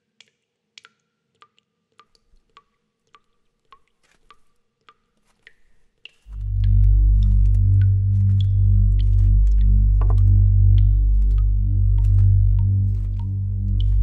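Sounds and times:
water dripping into water: 0:00.0 - 0:14.0
low droning music chord: 0:06.3 - 0:14.0.

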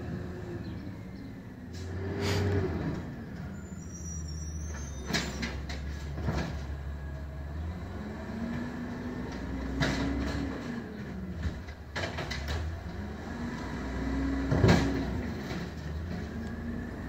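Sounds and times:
garbage truck engine revving: 0:00.0 - 0:04.3, 0:05.9 - 0:17.0.

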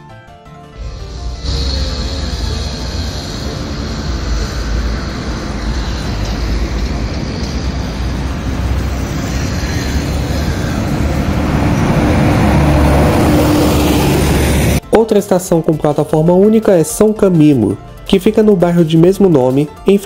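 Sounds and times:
bus passing close: 0:00.8 - 0:14.8
road traffic: 0:00.8 - 0:14.8.

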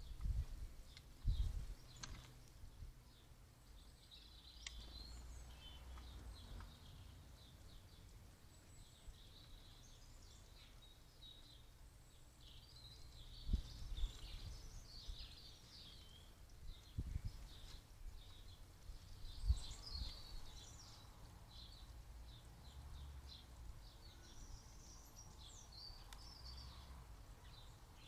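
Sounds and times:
wind on microphone: 0:00.0 - 0:01.8, 0:13.4 - 0:15.4, 0:16.6 - 0:17.6
birds chirping: 0:00.0 - 0:28.0.

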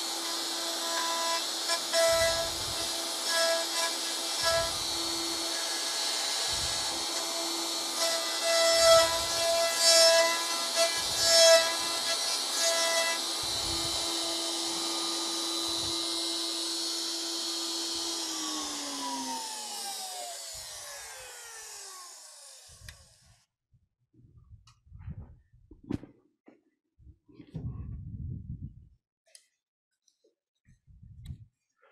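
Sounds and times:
router cutting wood: 0:00.0 - 0:23.2
router winding down whine: 0:00.0 - 0:23.4.

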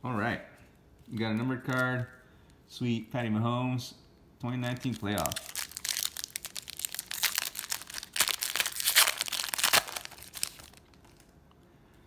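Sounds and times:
foil wrapper tearing and crinkling: 0:04.7 - 0:11.3.

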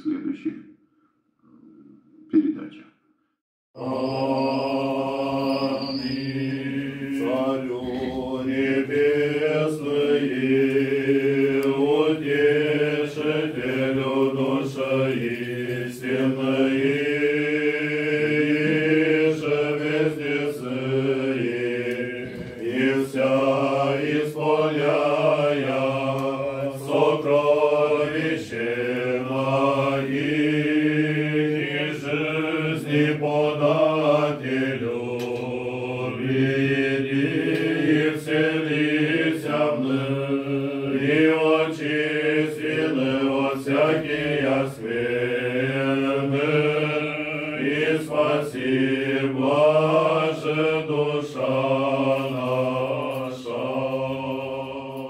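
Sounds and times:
voices chanting: 0:03.8 - 0:55.0.

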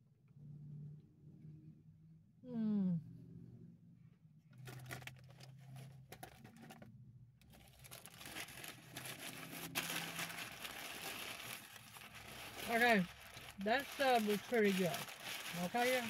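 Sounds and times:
paper wrapper crinkling: 0:04.6 - 0:06.8, 0:07.4 - 0:16.0.

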